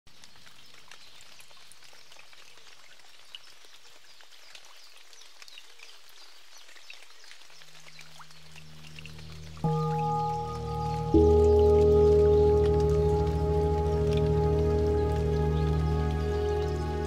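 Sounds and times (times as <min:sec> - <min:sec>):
water dripping patter: 0:00.1 - 0:17.0
low music drone: 0:08.2 - 0:17.0.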